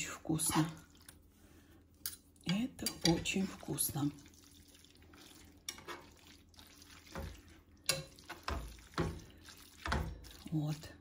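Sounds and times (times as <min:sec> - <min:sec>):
utensils clinking and scraping pan: 0:02.5 - 0:04.1, 0:05.6 - 0:06.2, 0:07.0 - 0:10.6.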